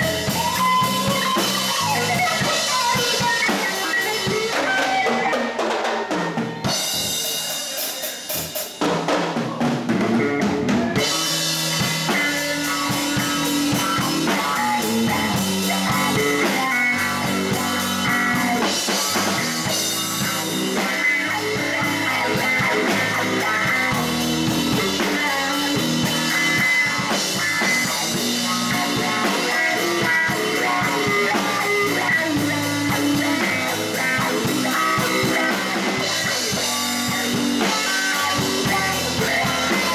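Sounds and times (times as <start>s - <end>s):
bass guitar: 0.0s - 39.9s
drum kit beat: 0.0s - 39.9s
electric guitar: 0.0s - 39.9s.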